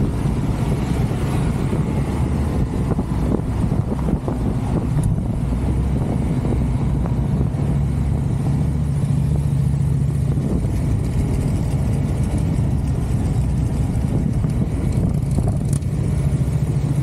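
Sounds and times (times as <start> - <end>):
motorcycle engine running: 0.0 - 17.0
road and wind noise: 0.0 - 17.0.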